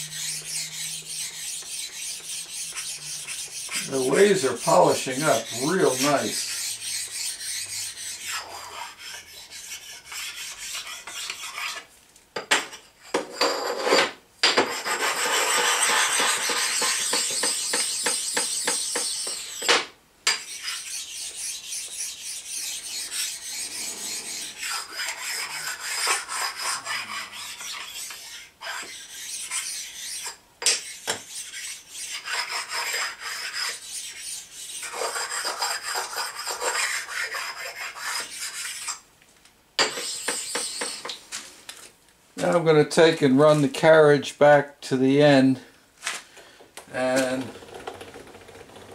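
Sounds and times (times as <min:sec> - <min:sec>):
stone rasping on metal: 0:00.0 - 0:11.9, 0:14.7 - 0:19.7, 0:20.3 - 0:39.0, 0:39.8 - 0:41.2.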